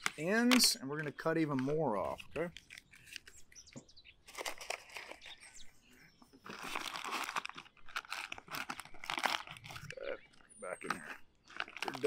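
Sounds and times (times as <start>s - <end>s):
plastic bag crinkling: 4.2s - 5.5s, 6.4s - 12.0s.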